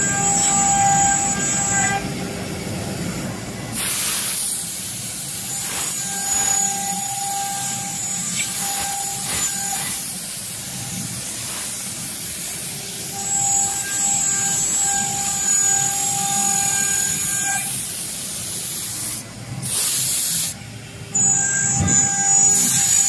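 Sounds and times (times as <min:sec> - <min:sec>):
router spindle whine: 0:00.0 - 0:02.2, 0:05.5 - 0:09.8, 0:13.1 - 0:17.7, 0:21.2 - 0:23.0.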